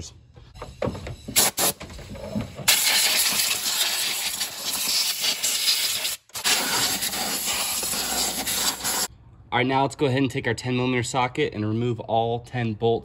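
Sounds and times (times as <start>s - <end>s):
compressed air blow gun hissing: 2.7s - 9.1s.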